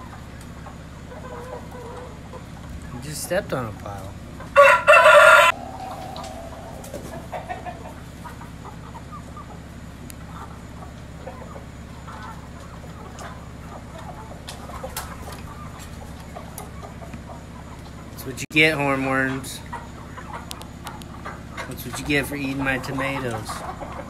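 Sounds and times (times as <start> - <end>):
chicken squawk: 0.0 - 3.0, 4.4 - 18.2, 19.1 - 24.0
chickens clucking softly: 0.0 - 24.0.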